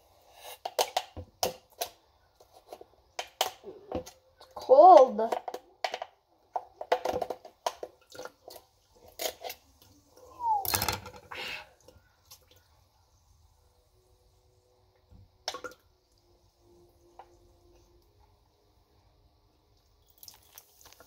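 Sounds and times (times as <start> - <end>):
slush and ice clicking and dripping: 19.8 - 21.0.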